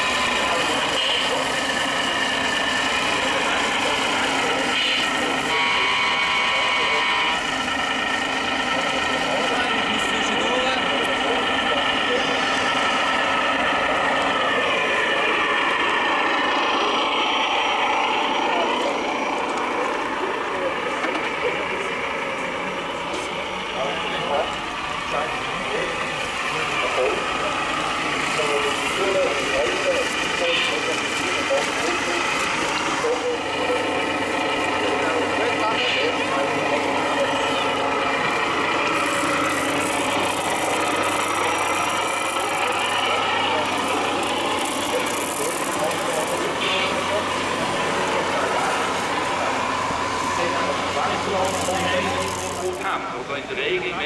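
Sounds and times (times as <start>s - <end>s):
engine idling: 0.0s - 54.0s
toy trucks mechanical whir: 34.9s - 53.0s.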